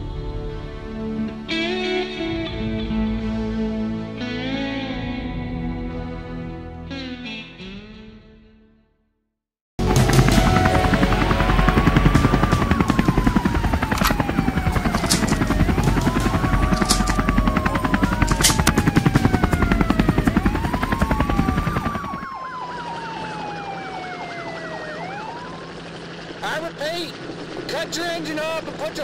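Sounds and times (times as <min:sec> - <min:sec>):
police sirens wailing: 0:09.8 - 0:26.9
helicopter rotor chopping: 0:09.8 - 0:29.0
siren fast yelp: 0:10.4 - 0:25.8.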